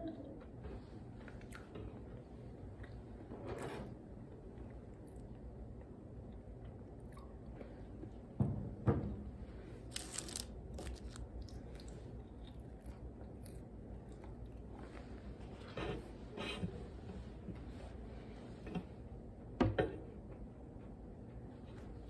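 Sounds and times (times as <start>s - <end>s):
person chewing crunchy food: 9.8s - 14.8s
short crisp crackle: 9.9s - 11.0s.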